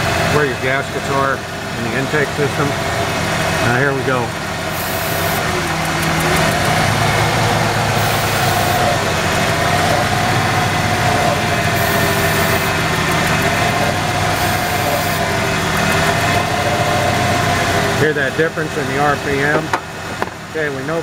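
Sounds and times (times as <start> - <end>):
engine idling: 0.0 - 21.0
aerosol spray hissing: 4.7 - 5.4, 8.0 - 8.8, 11.8 - 12.7, 14.3 - 15.2.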